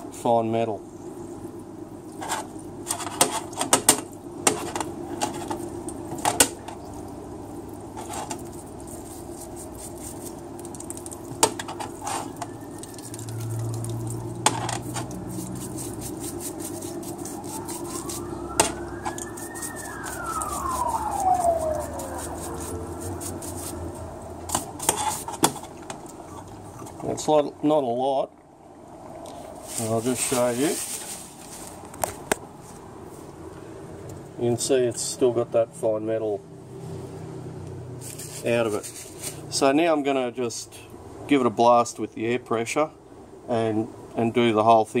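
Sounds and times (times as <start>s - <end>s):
pump running: 1.7s - 27.2s
solvent splashing: 5.5s - 26.7s
siren-like wail: 11.9s - 15.9s, 16.7s - 24.5s.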